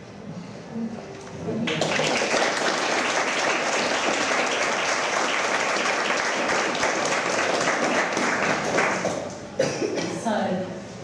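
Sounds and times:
people clapping: 1.6s - 9.5s.

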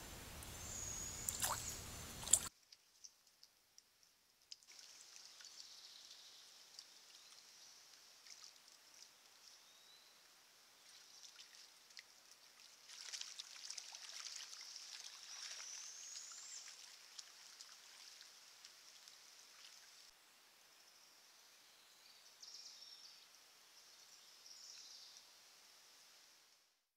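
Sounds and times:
high steady hiss: 0.0s - 2.5s, 15.7s - 26.9s
creek water splashing and trickling: 0.4s - 3.7s, 4.4s - 20.1s.

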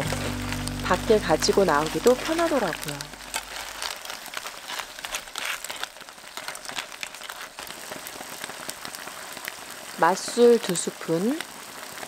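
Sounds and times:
wooden spatula stirring clams: 0.0s - 9.5s
food sizzling in a pot: 0.0s - 12.0s.

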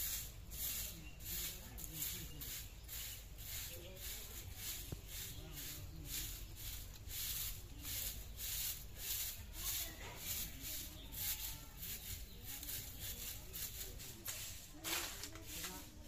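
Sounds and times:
broom sweeping concrete floor: 0.0s - 16.0s.

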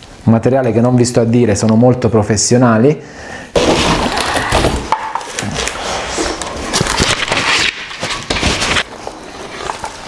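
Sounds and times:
cardboard and plastic rustling: 3.6s - 10.0s.

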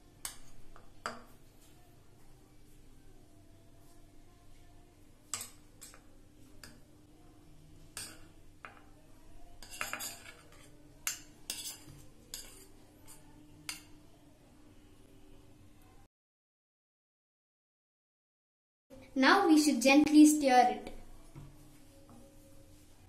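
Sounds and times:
metal spoon clinking on ceramic: 9.6s - 13.9s.

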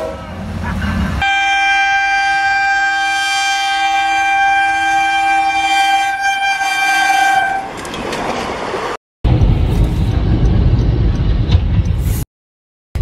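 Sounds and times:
locomotive horn blast: 0.0s - 0.5s, 1.1s - 7.8s.

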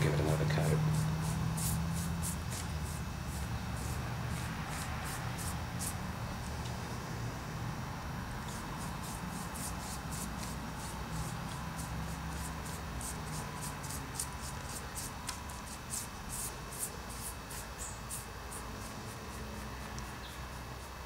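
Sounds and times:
steady low hum: 0.0s - 21.0s
paintbrush scrubbing strokes: 0.8s - 6.0s, 8.4s - 21.0s.

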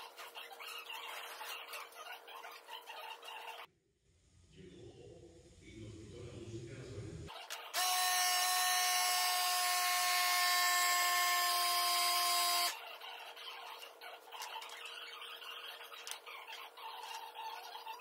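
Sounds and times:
machine motor humming and hissing: 7.8s - 12.8s.

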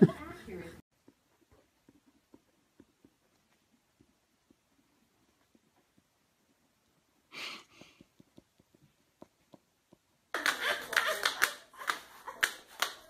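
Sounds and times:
breathy huff: 7.3s - 8.1s.

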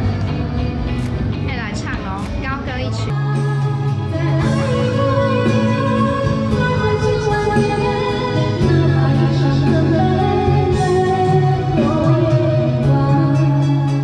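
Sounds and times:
karaoke backing track: 0.0s - 14.0s
woman singing into a microphone: 3.1s - 14.0s.

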